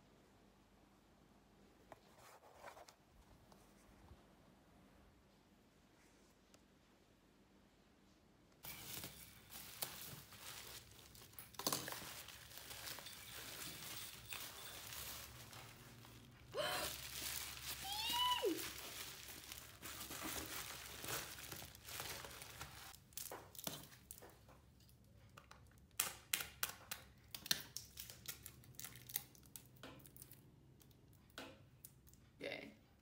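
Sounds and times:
bubble wrap crinkling: 8.6 - 24.5, 25.7 - 30.4
plastic-wrapped items clicking: 8.6 - 31.2.

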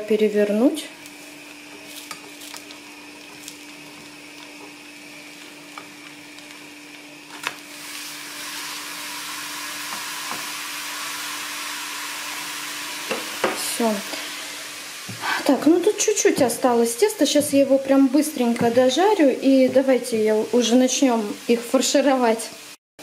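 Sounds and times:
pancake sizzling in a pan: 1.0 - 16.1.

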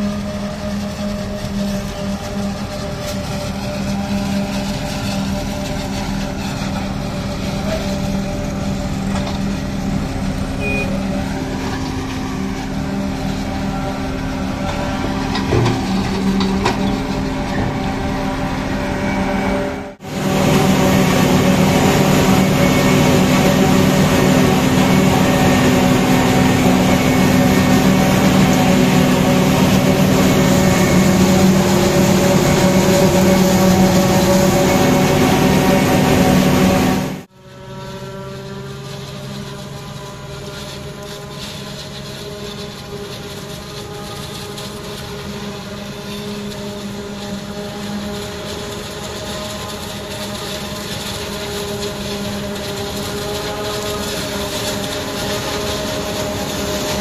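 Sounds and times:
harvester machinery drone: 0.0 - 57.0
forage harvester chopping maize: 38.0 - 57.0.

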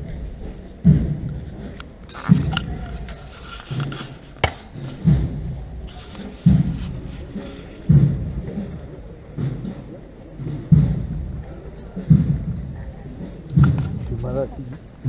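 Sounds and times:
deep drum beating slowly: 4.8 - 14.2.

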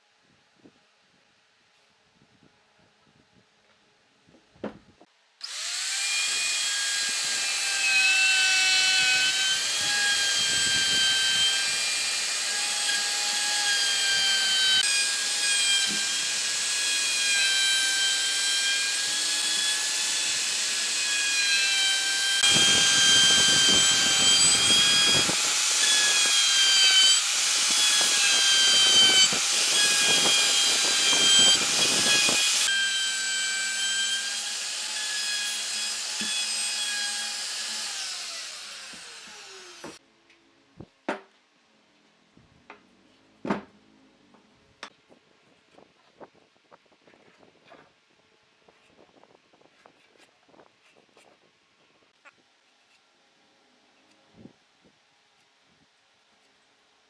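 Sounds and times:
electric router whining into wood: 5.4 - 40.0.

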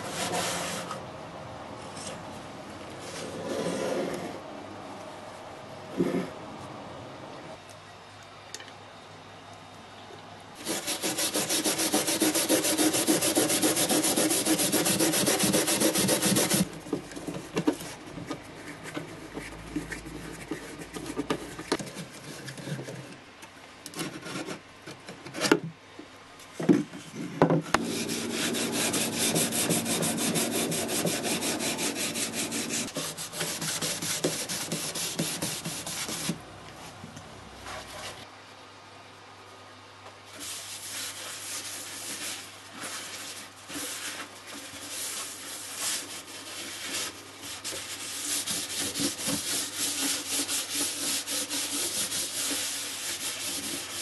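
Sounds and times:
scrubbing wooden boards: 10.6 - 16.7, 27.8 - 36.4, 40.9 - 54.0.

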